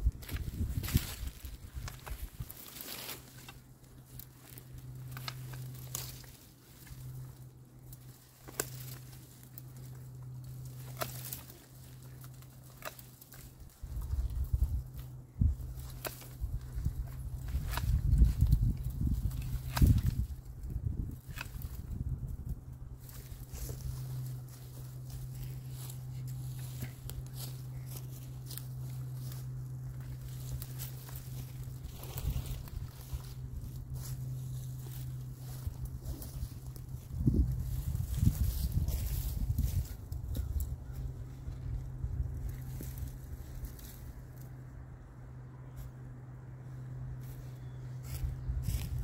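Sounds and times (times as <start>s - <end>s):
branches snapping: 0.0s - 44.6s
dry twigs rustling: 0.0s - 49.0s
low hum: 0.0s - 49.0s
loppers snipping stems: 7.8s - 14.1s.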